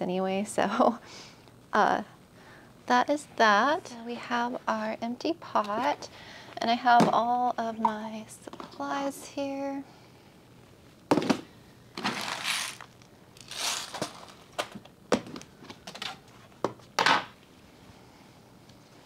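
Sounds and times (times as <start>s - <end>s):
plastic bins knocking: 11.1s - 12.2s
rustling and scraping: 12.0s - 14.8s.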